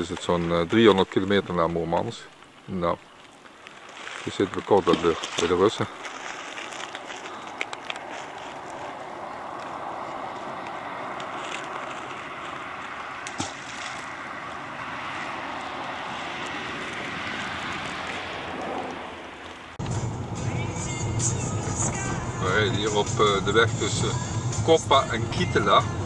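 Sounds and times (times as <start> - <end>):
small waves on shore: 0.0 - 19.8
wind: 0.0 - 26.0.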